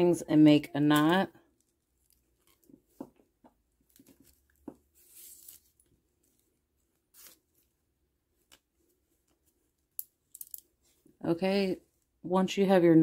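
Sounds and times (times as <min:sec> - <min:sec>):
plastic beads clicking: 0:09.9 - 0:10.7.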